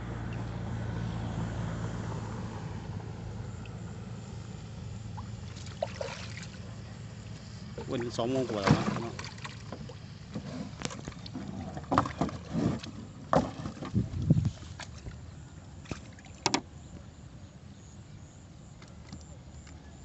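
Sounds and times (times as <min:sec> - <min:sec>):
metal trap clunking against boat: 0:08.5 - 0:14.0.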